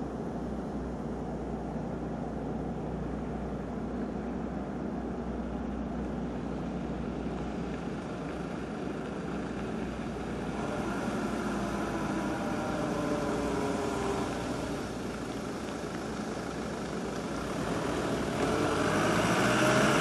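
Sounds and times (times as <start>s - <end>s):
vehicle engine humming: 0.0s - 20.0s
tyres rumbling on gravel: 5.6s - 20.0s.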